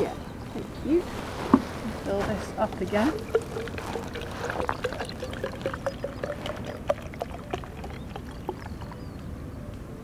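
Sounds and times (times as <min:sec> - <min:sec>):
water pouring into plastic bottle: 0:02.6 - 0:09.1
small splashes and clicks: 0:02.8 - 0:09.1.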